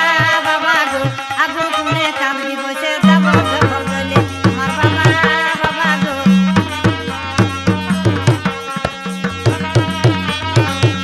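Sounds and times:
hand drums playing: 2.8s - 11.0s
melodic instrument line: 3.0s - 10.7s.

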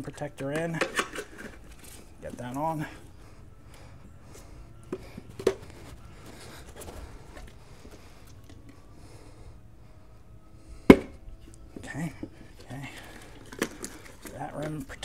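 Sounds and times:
tire rubbing and scraping: 1.0s - 15.0s.

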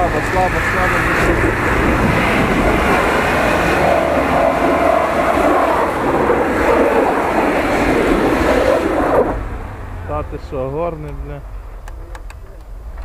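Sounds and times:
wheels spinning in snow: 0.0s - 9.4s
engine revving hard: 0.0s - 10.7s.

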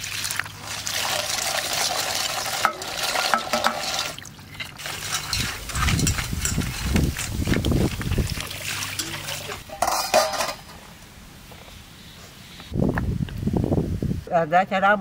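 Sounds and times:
hand stirring wet food in colander: 0.0s - 10.7s
water pouring and splashing: 0.0s - 10.7s.

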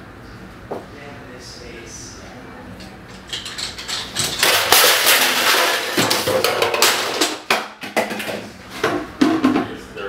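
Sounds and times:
desk items crashing to floor: 3.3s - 9.7s.

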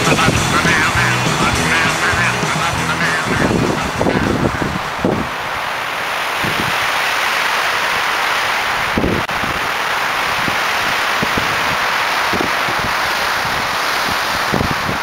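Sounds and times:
wind buffeting microphone: 0.0s - 7.0s, 8.7s - 15.0s
wind rushing through pines: 0.0s - 15.0s.

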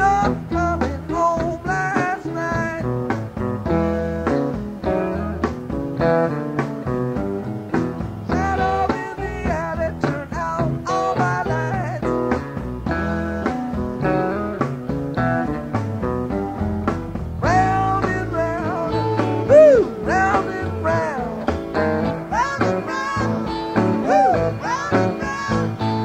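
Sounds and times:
person singing: 0.0s - 3.0s, 8.3s - 12.4s, 17.4s - 26.0s
electric guitar lines: 0.0s - 26.0s
live rock band playing: 0.0s - 26.0s.

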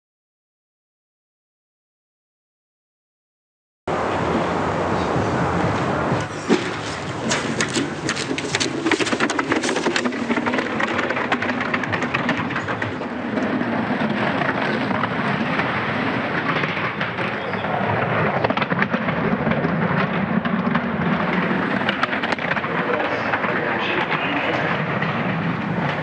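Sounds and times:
sled runners hissing over ice: 6.3s - 10.6s.

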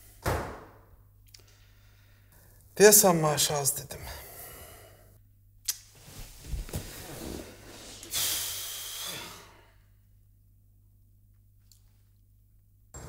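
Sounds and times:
clothes and chair rustling: 5.9s - 8.1s
chair hiss: 6.2s - 9.4s.

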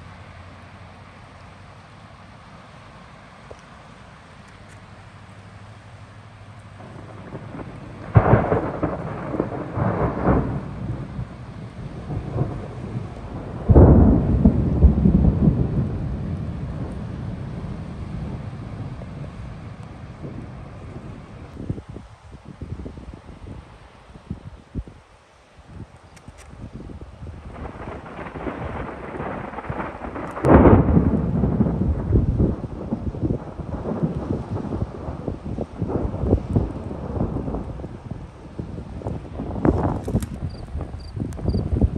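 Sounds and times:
thunder clap rumbling: 6.8s - 22.0s, 27.2s - 41.9s.

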